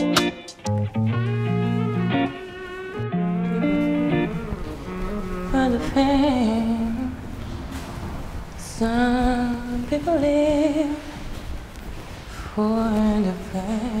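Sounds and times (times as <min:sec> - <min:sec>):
woman singing unaccompanied: 0:05.2 - 0:07.4, 0:08.6 - 0:11.4, 0:12.5 - 0:14.0.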